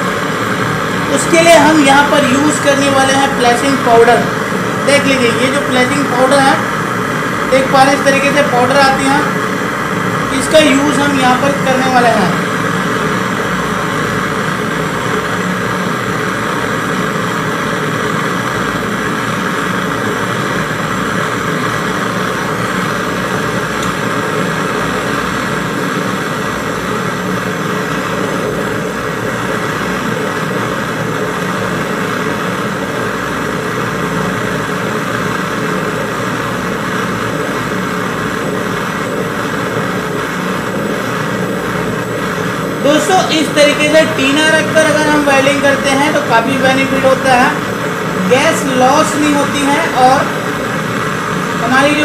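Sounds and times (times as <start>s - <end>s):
gas torch flame burning: 0.0s - 52.0s.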